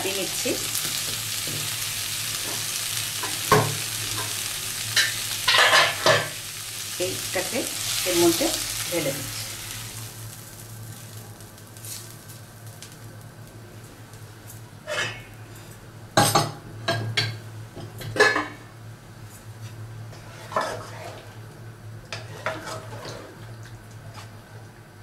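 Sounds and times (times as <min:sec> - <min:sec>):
steady low hum: 0:00.0 - 0:25.0
spatula scraping a pot: 0:20.1 - 0:21.2, 0:22.1 - 0:23.4.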